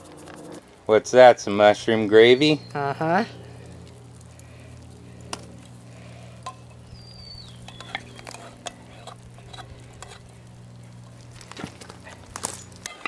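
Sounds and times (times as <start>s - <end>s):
steady low hum: 0.0s - 13.0s
metal spoon scraping tin can: 7.6s - 10.3s, 12.6s - 13.0s.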